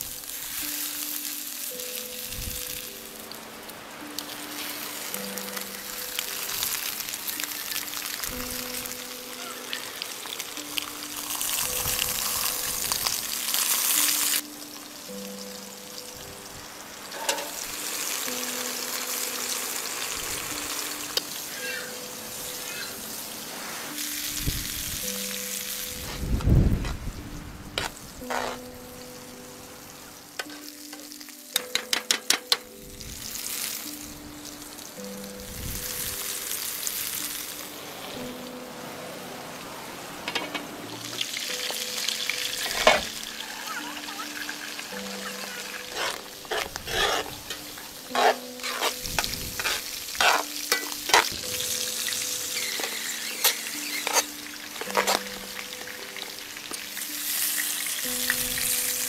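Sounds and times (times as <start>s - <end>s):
meat sizzling in pans: 0.0s - 38.6s, 39.2s - 59.0s.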